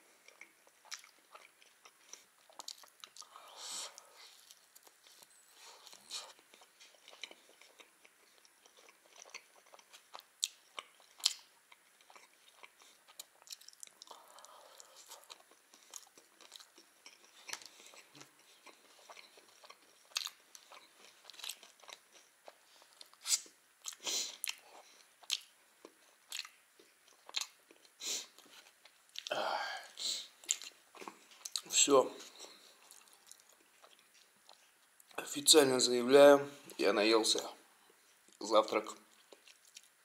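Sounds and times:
close-up chewing: 0:00.1 - 0:35.2, 0:39.0 - 0:40.0
smacking mouth sounds: 0:30.4 - 0:35.2, 0:39.0 - 0:40.0.

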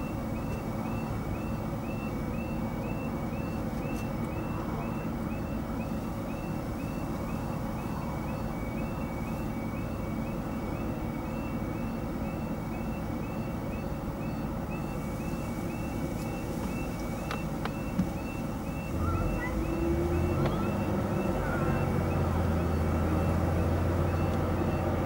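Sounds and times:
car engine idling: 0:00.0 - 0:25.0
level crossing alarm tone: 0:00.0 - 0:25.0.

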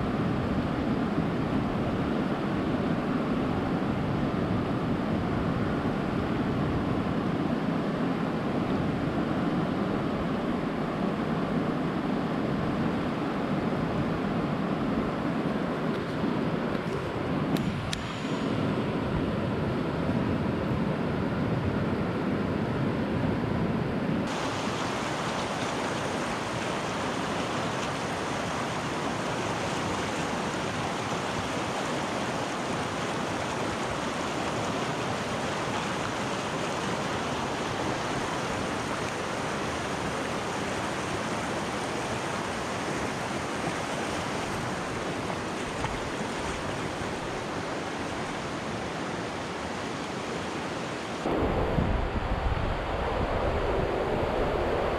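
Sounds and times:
stream rushing: 0:00.0 - 0:22.6, 0:24.2 - 0:54.9
low rumbling noise: 0:51.2 - 0:54.9.

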